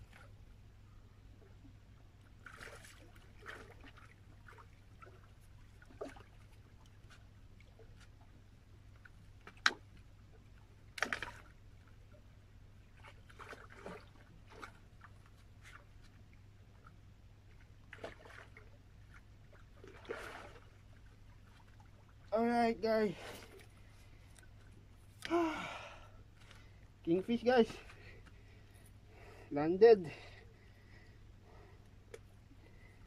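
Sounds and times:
shallow water splashing: 1.4 - 22.3.

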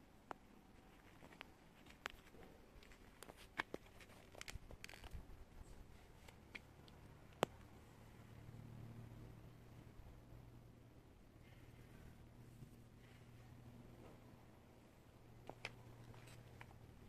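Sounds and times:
handling clicks and crunches: 0.3 - 7.7, 15.4 - 16.9.

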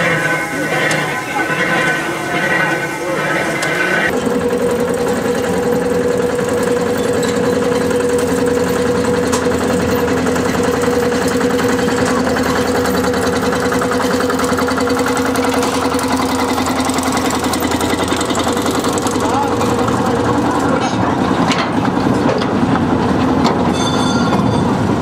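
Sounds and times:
diesel locomotive engine chugging: 0.0 - 25.0.

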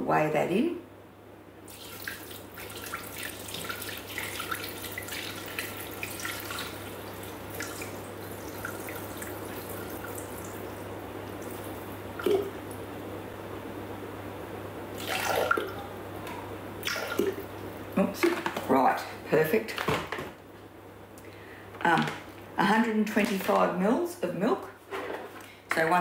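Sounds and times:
water trickling into metal bowl: 1.7 - 10.7
water drips and splashes: 1.7 - 12.8, 15.0 - 15.9, 16.8 - 17.6.

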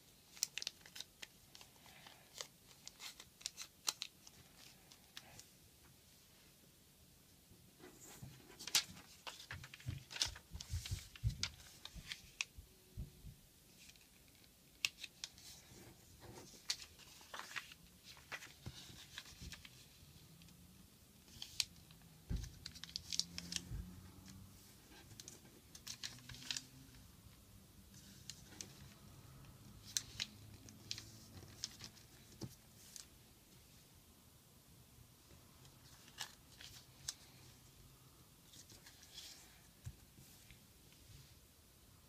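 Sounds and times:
paper crinkling and folding: 0.3 - 5.5, 7.9 - 12.5, 13.7 - 20.2, 21.2 - 27.0, 27.9 - 33.2, 35.7 - 37.5, 38.5 - 41.2.

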